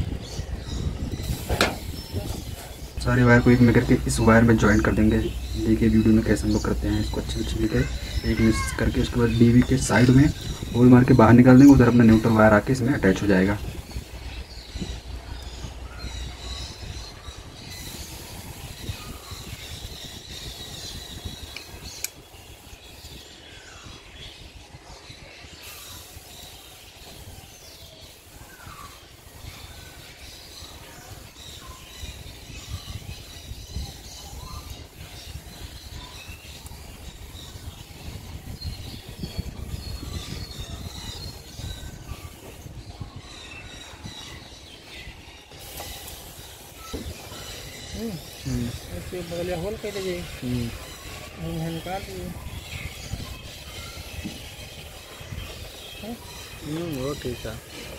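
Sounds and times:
low outdoor rumble: 0.0s - 19.2s
faint high chirping: 0.0s - 57.9s.

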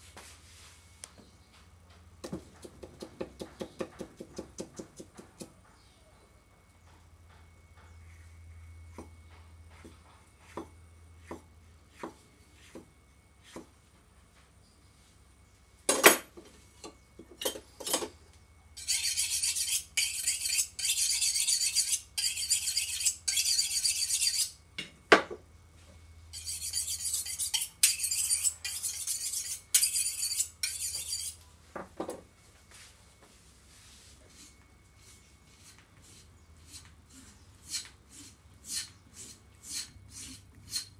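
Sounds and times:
knife scraping on sharpening rod: 18.8s - 24.6s, 26.3s - 31.4s, 34.3s - 40.9s.

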